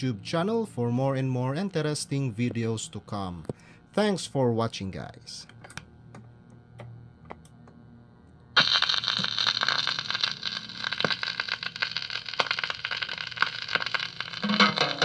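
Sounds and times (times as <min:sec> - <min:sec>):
record surface crackling: 0:05.4 - 0:15.0
music from record: 0:08.6 - 0:15.0.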